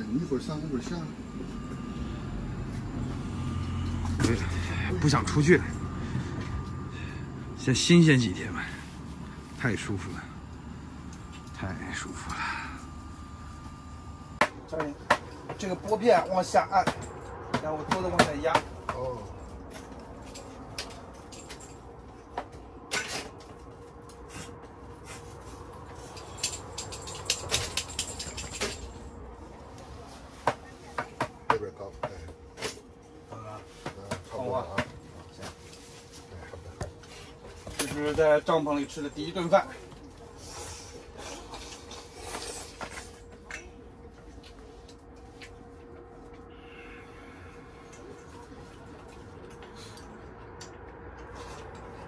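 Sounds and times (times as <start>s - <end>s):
faint steady hum: 0.0s - 17.3s, 18.5s - 52.0s.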